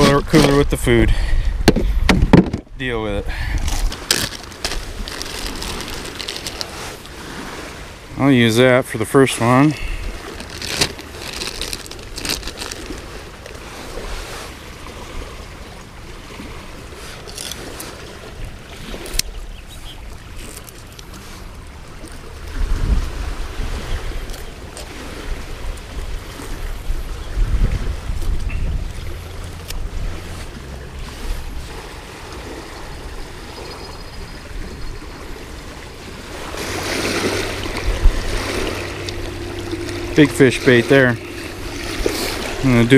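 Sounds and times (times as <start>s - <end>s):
waves lapping on rocky shore: 0.0s - 42.9s
wind: 0.0s - 42.9s
plastic bag crinkling: 3.6s - 6.9s, 10.2s - 13.2s
wind rumble on microphone: 21.9s - 42.9s.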